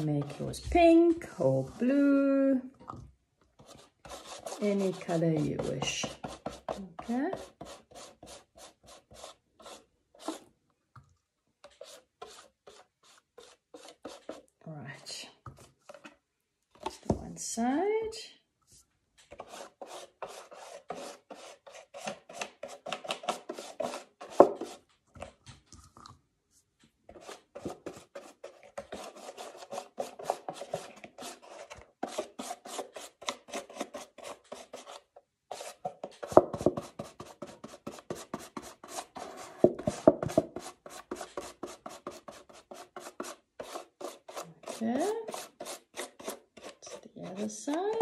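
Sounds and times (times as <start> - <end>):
paintbrush strokes on cardboard: 3.6 - 10.4, 11.6 - 14.5, 18.7 - 22.1, 26.5 - 48.0.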